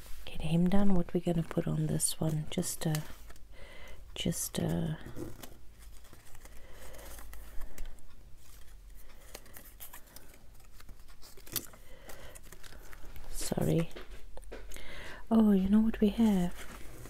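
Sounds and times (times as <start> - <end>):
paper rustling: 4.2 - 14.2, 15.9 - 17.0.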